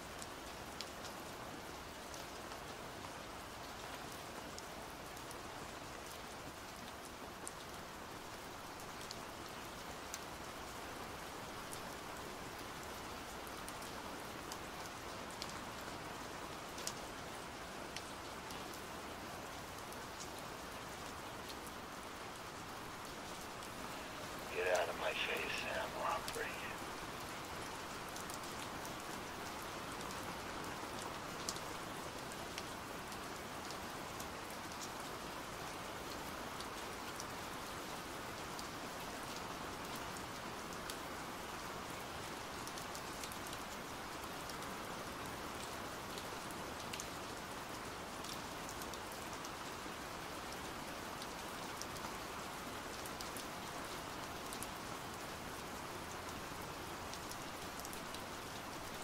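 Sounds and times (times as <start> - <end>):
pouring rain: 0.0 - 59.0
raindrops ticking: 23.0 - 27.0.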